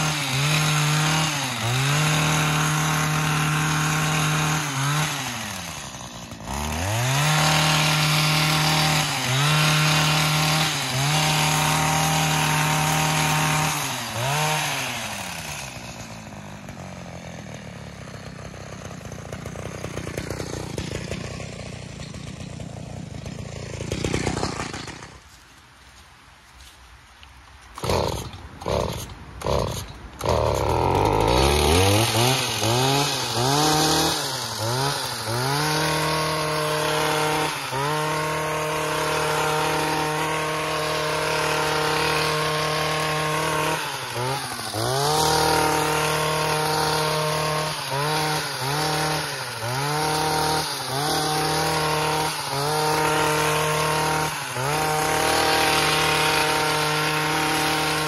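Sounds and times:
two-stroke garden power tool revving: 0.0 - 25.2, 27.8 - 58.0.

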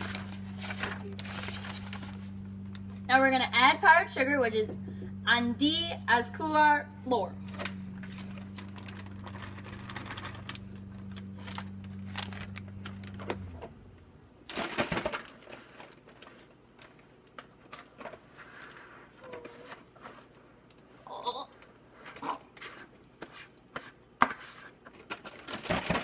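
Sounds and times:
paper bag crinkling: 0.0 - 3.0, 7.4 - 13.6, 14.5 - 17.0
low hum: 0.0 - 14.5.

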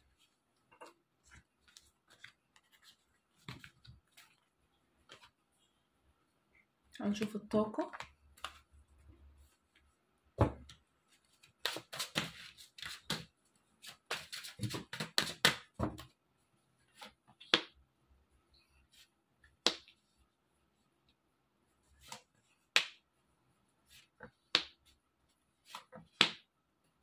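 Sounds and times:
cards clicking and tapping: 7.9 - 8.6, 11.6 - 13.4, 14.0 - 16.1, 25.7 - 26.5
dull thump on cloth table: 10.4 - 10.7.

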